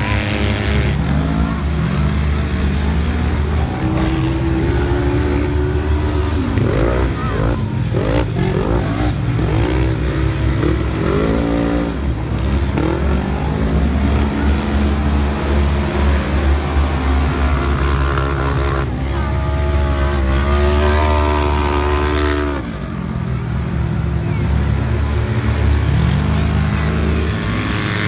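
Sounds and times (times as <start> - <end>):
racing engines revving: 0.0 - 28.0.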